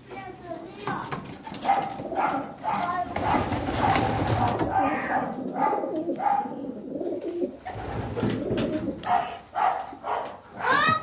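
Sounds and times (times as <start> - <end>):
pigeons cooing: 1.6 - 9.4
wings flapping: 2.8 - 4.8.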